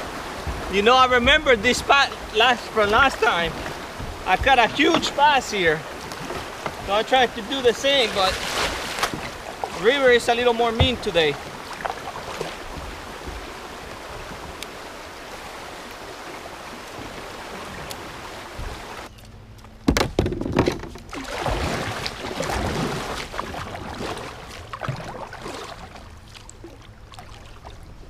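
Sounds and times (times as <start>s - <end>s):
kayak paddle splashing: 0.0s - 19.1s, 21.0s - 28.0s
river water rushing: 0.0s - 19.1s.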